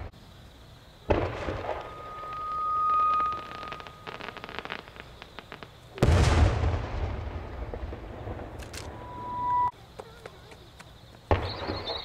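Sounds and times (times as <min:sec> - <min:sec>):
firework crackling: 0:01.0 - 0:09.7
firework boom with rumbling echo: 0:01.1 - 0:04.0, 0:06.0 - 0:09.7
steady whistle: 0:01.7 - 0:04.6, 0:08.9 - 0:09.7.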